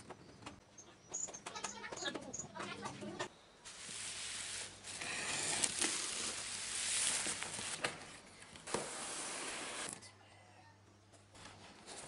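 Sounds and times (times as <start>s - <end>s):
plastic wrapping rustling: 3.7s - 8.2s
cardboard sleeve scraping: 4.9s - 7.8s.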